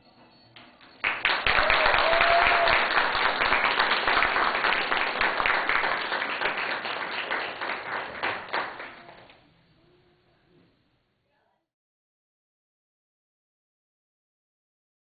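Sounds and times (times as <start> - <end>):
audience applauding: 0.9 - 9.3.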